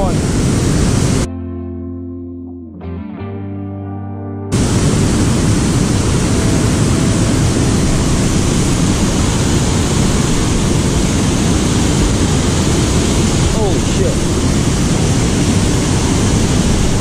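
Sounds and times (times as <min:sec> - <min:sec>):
water rushing over a spillway: 0:04.6 - 0:17.0.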